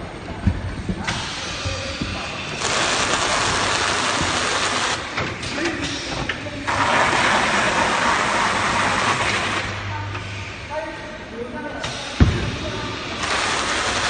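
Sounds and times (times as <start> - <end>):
carton sealer motor hum: 1.5 - 5.7, 6.4 - 10.2, 13.0 - 14.0.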